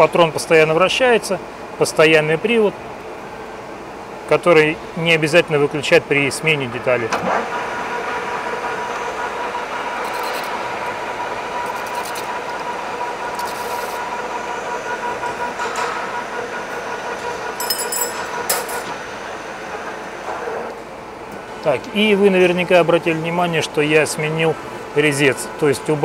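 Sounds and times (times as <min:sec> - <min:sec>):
metal lathe whine: 0:07.4 - 0:20.7.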